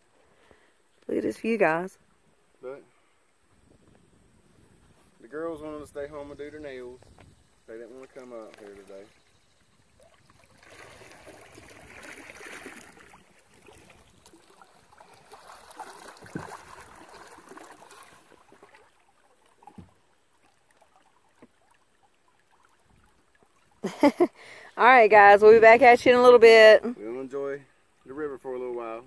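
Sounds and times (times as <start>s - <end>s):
water splashing around boat: 6.9s - 26.7s.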